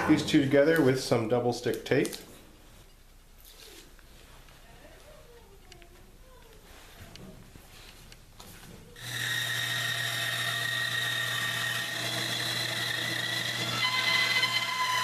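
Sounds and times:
bandsaw running: 0:09.0 - 0:15.0.

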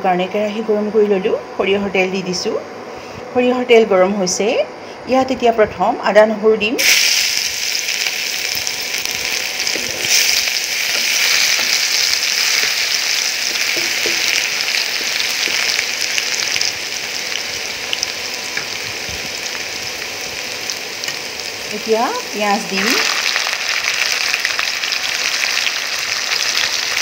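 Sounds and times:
ginger and garlic sizzling in oil: 0:06.8 - 0:27.0.

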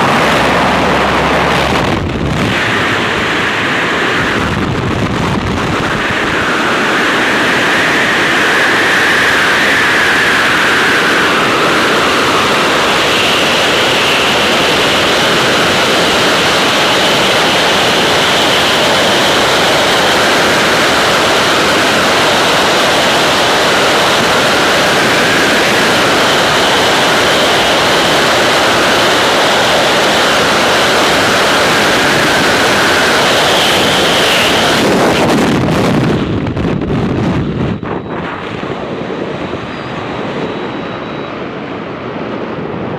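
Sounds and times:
wind roaring over microphone: 0:00.0 - 0:42.9
faint high whistle: 0:39.6 - 0:41.5.

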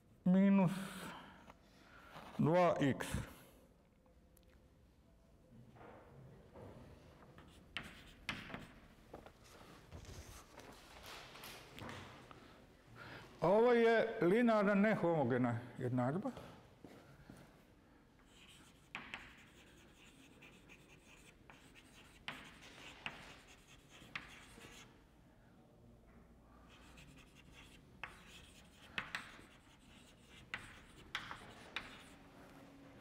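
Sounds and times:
chalk scratching on blackboard: 0:07.4 - 0:08.8, 0:18.3 - 0:25.0, 0:26.7 - 0:32.2
chalk tapping on board: 0:07.4 - 0:08.8, 0:18.4 - 0:24.9, 0:26.8 - 0:32.2.

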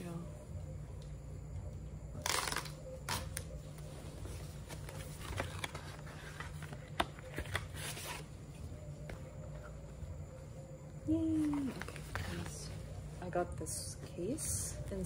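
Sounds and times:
tear strip ripping: 0:02.2 - 0:03.3
cardboard rustling and scraping: 0:04.2 - 0:08.4.

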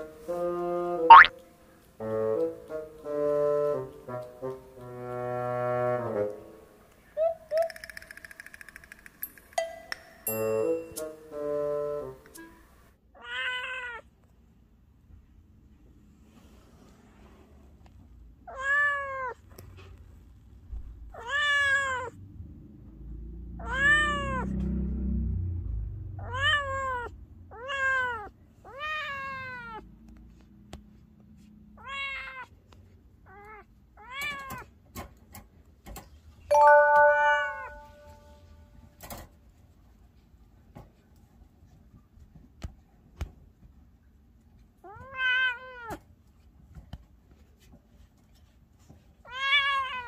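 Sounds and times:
cat meowing: 0:01.1 - 0:01.3, 0:13.2 - 0:14.0, 0:18.5 - 0:19.4, 0:21.2 - 0:22.1, 0:23.6 - 0:24.5, 0:26.2 - 0:29.8, 0:31.8 - 0:32.5, 0:44.8 - 0:45.9, 0:49.3 - 0:50.0
sharp clicks: 0:07.5 - 0:10.2.

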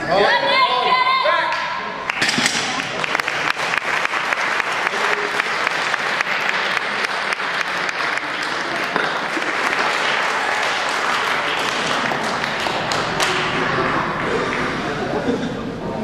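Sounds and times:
audience applauding: 0:02.0 - 0:15.4.

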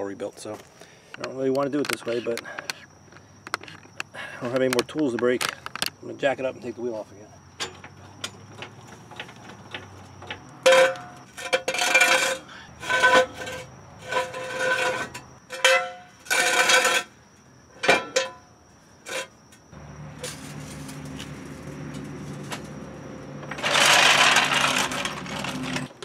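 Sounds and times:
floor jack squeaky scrape: 0:10.7 - 0:17.1, 0:23.4 - 0:26.0.

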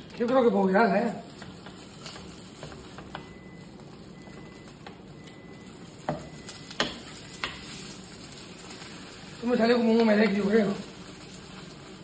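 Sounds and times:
tortilla sizzling in frying pan: 0:00.0 - 0:12.0
spatula scraping in pan: 0:00.8 - 0:03.2, 0:06.3 - 0:12.0.

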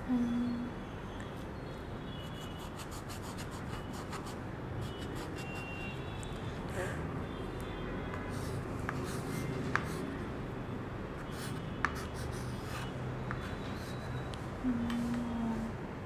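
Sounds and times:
chalk scratching on slate: 0:02.3 - 0:05.8, 0:08.2 - 0:10.1, 0:11.3 - 0:14.2
chalk tapping on slate: 0:08.2 - 0:10.1, 0:11.8 - 0:12.4.

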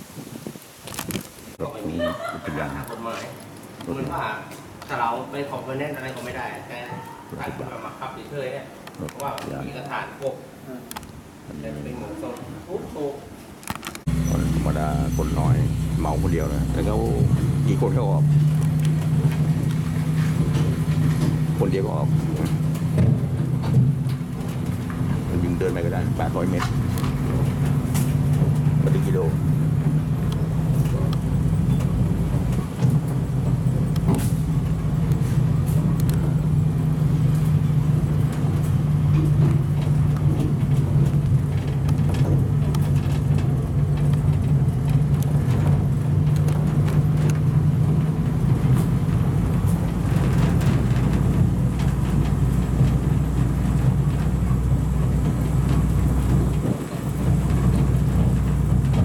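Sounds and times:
vehicle engine hum: 0:13.8 - 0:59.0.

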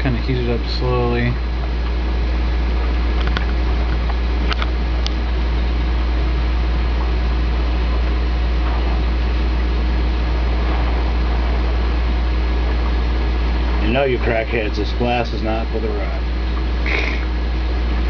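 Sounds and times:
low hum: 0:00.0 - 0:18.0
torch flame hissing: 0:07.1 - 0:17.9.

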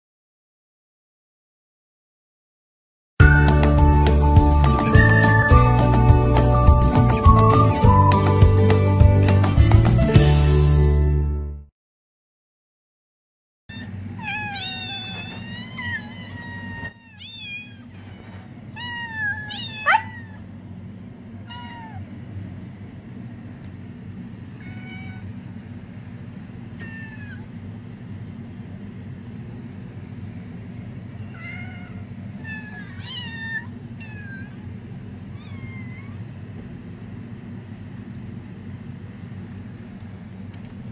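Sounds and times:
cats meowing: 0:13.7 - 0:20.6, 0:21.4 - 0:22.2, 0:24.6 - 0:25.4, 0:26.7 - 0:27.5, 0:31.2 - 0:36.4
steady low hum: 0:13.7 - 0:40.9.

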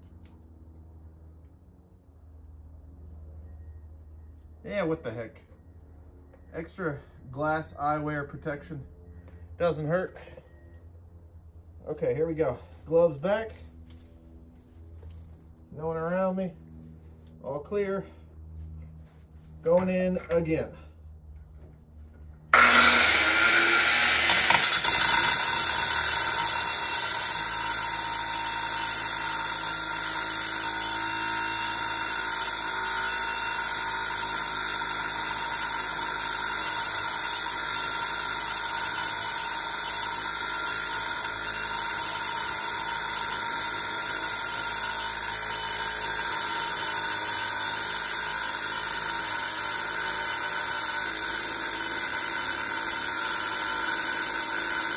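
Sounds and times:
angle grinder cutting metal: 0:22.5 - 0:54.9.

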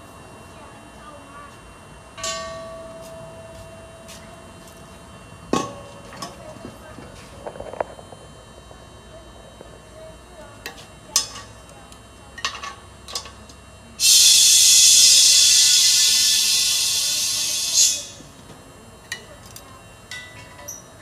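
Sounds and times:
compressed air hissing from hose: 0:14.0 - 0:18.2.

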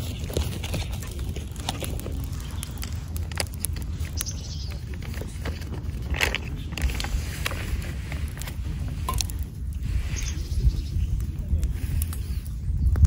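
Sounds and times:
low fire rumble: 0:00.0 - 0:13.0
wood fire crackling and popping: 0:00.0 - 0:13.0.

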